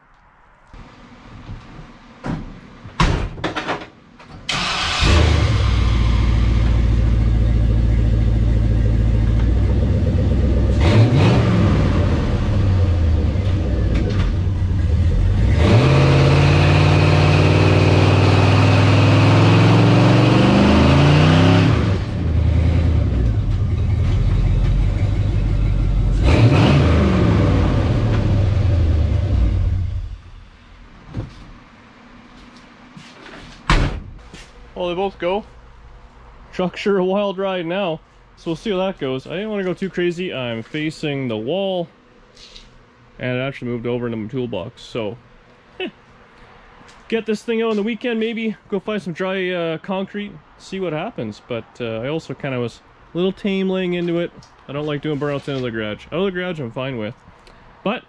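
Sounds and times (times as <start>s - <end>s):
tires spinning: 4.5s - 30.0s
pickup engine revving: 4.5s - 30.2s.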